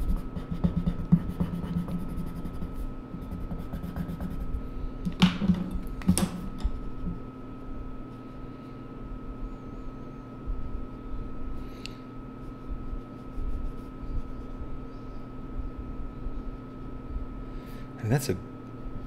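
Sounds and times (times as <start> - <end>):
pencil scribbling on paper: 0.0 - 4.6, 12.8 - 14.6.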